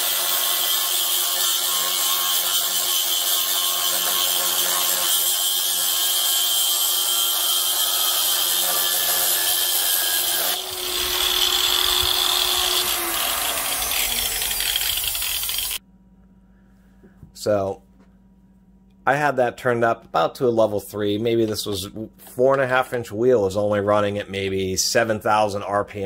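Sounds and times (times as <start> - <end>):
angle grinder cutting steel: 0.0 - 15.8.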